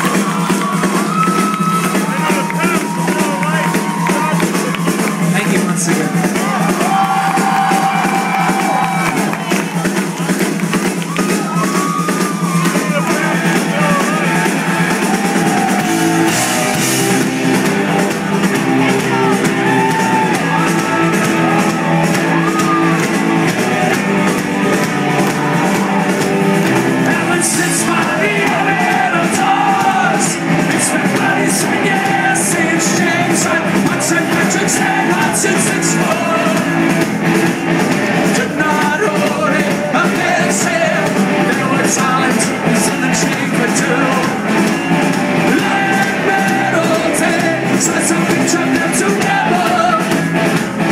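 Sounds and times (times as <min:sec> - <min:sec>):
punk rock band playing live: 0:00.0 - 0:50.9
sung and shouted vocals: 0:27.0 - 0:36.9, 0:38.2 - 0:50.3.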